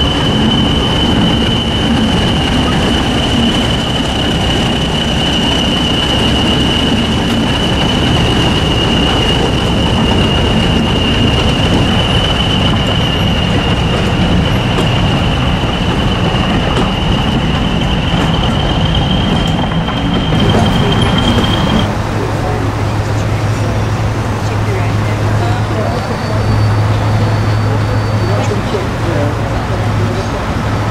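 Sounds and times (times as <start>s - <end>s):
high turbocharger whistle: 0.0s - 21.9s
diesel locomotive rumbling past: 0.0s - 30.9s.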